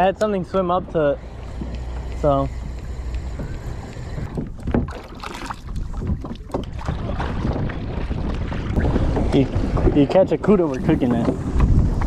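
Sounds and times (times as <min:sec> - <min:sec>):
wind rumble on microphone: 0:00.0 - 0:12.0
kayak paddle splashing in water: 0:04.6 - 0:09.9.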